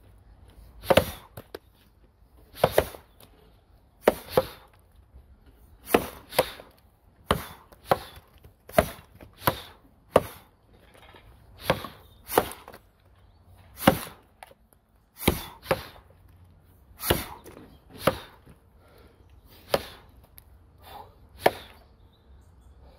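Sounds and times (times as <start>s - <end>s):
axe chopping log: 0.8s - 1.6s, 2.5s - 3.2s, 4.0s - 4.8s, 5.8s - 10.5s, 11.6s - 12.8s, 13.7s - 14.5s, 15.2s - 16.1s, 17.0s - 18.6s, 19.6s - 20.4s, 21.4s - 21.8s.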